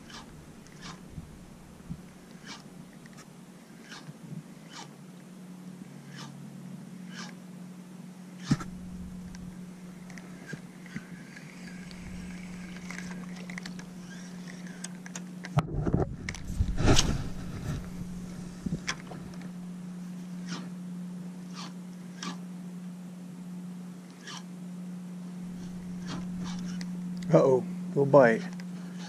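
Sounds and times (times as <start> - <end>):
low hum: 0.0 - 29.0
fishing reel sharp clicks: 7.1 - 7.3, 10.0 - 15.1
rod swinging knocks and rustle: 25.6 - 26.9.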